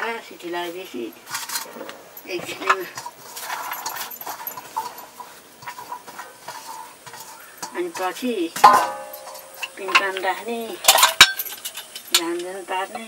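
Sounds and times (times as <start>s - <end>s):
greens scraping across metal: 0.0s - 13.0s
small metal clicks: 8.6s - 12.6s.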